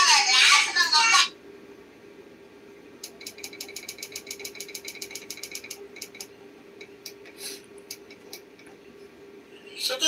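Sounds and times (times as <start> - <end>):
projector humming: 0.0 - 10.0
fast sharp clicks: 3.0 - 7.2, 7.8 - 8.7.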